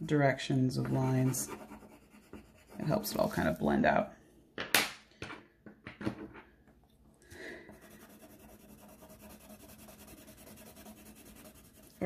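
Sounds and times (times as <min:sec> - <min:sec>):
pencil scratching on paper: 0:00.7 - 0:03.8, 0:07.7 - 0:12.0.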